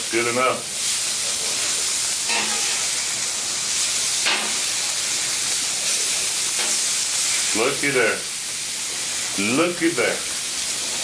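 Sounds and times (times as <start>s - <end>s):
steaks sizzling on griddle: 0.0s - 11.0s
metal spatula scraping: 2.3s - 2.9s.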